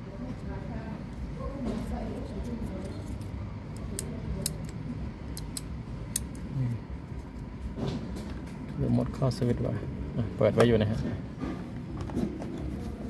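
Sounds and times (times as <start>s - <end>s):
switch clicking: 3.8s - 6.4s.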